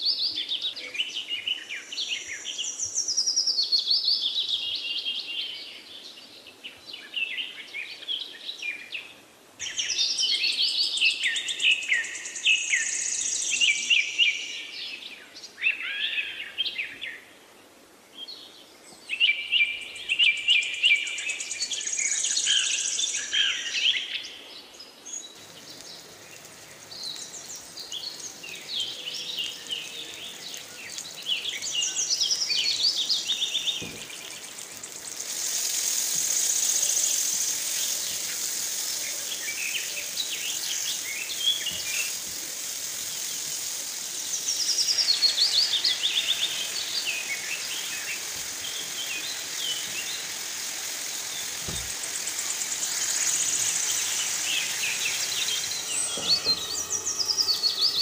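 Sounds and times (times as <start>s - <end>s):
birds singing: 18.2s - 58.0s.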